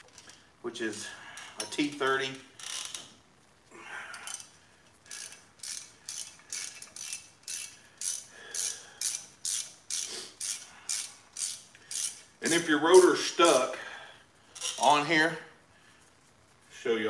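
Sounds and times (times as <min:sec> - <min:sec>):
socket ratchet clicking: 0:05.1 - 0:13.1.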